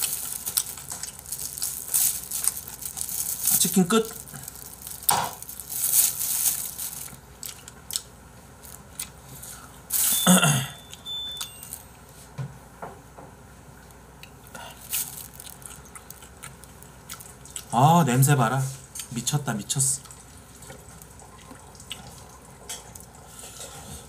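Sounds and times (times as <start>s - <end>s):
plastic gloves and tissue rustling: 0.0s - 7.6s, 8.6s - 10.4s, 14.7s - 17.0s.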